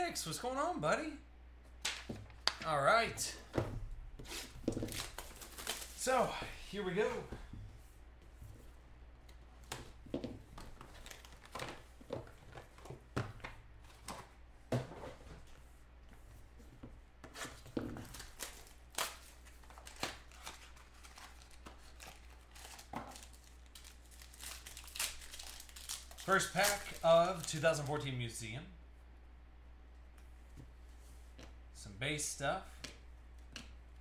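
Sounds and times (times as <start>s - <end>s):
plastic wrap crinkling: 18.2s - 28.1s.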